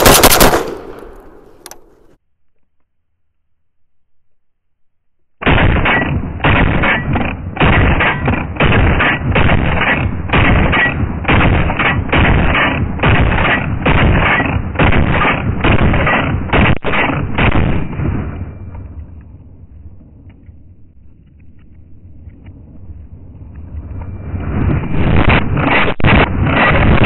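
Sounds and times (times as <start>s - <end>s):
shotgun firing: 0.0s - 2.0s, 5.4s - 18.3s, 25.0s - 27.0s.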